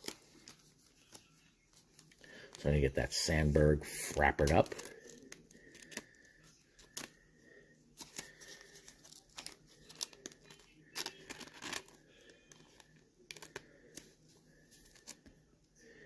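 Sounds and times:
plastic sleeve crinkling: 0:03.8 - 0:06.2, 0:08.0 - 0:15.3.

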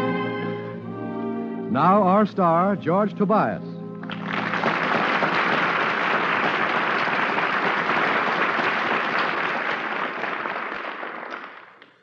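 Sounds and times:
audience applauding: 0:04.0 - 0:11.9.

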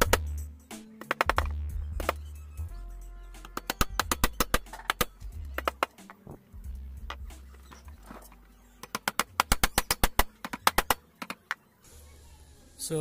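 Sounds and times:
hammer driving nails into wood: 0:00.0 - 0:00.3, 0:00.9 - 0:02.2, 0:03.4 - 0:06.4, 0:08.8 - 0:11.6.

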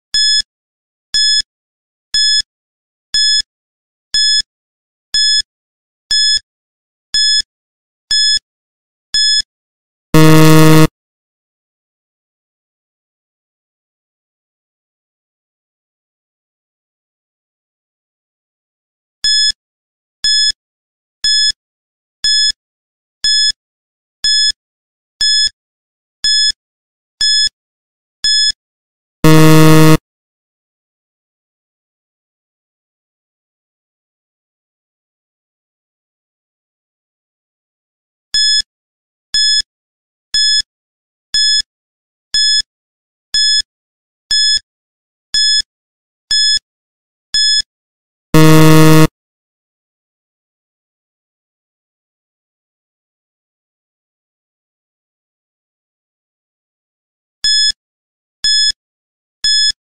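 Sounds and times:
low buzzer: 0:10.2 - 0:10.9, 0:29.2 - 0:30.0, 0:48.4 - 0:49.1
short high electronic beeps: 0:10.2 - 0:10.9, 0:29.2 - 0:30.0, 0:48.4 - 0:49.1.

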